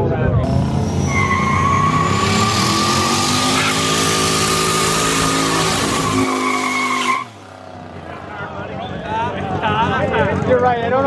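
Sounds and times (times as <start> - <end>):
truck engine at high revs: 0.0 - 10.6
tyre squeal: 0.5 - 7.4.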